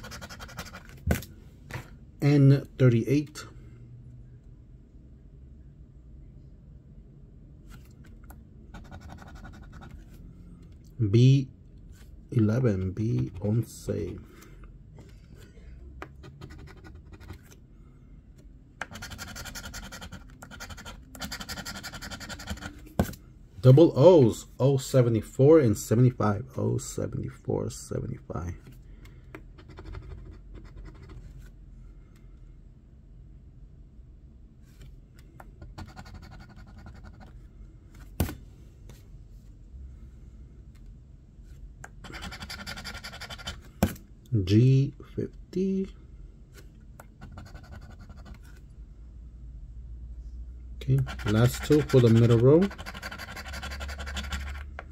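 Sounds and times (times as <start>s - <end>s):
coin scraping scratch card: 0.0s - 1.0s, 18.8s - 22.8s, 42.0s - 43.7s, 47.2s - 48.4s, 51.0s - 54.8s.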